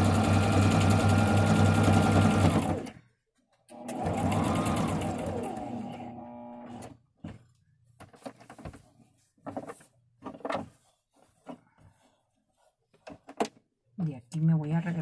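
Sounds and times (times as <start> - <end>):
sewing machine running: 0.0 - 3.0, 3.7 - 6.9
fabric rustling: 7.3 - 13.3.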